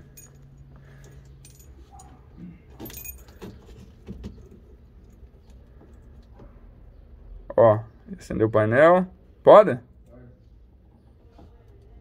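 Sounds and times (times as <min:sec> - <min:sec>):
keys jangling in ignition: 0:00.0 - 0:02.1, 0:02.7 - 0:03.4.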